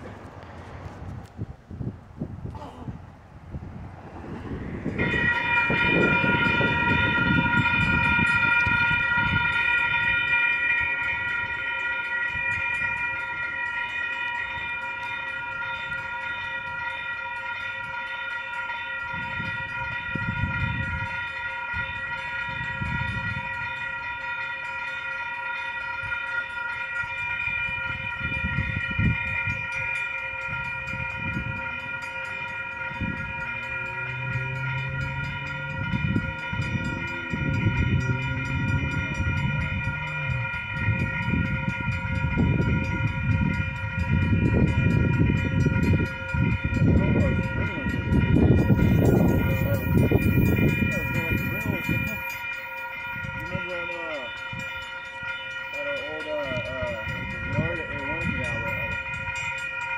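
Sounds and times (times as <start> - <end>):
low rumbles: 0.0 - 7.3, 30.6 - 52.4
crossing warning bell ringing: 3.5 - 59.9.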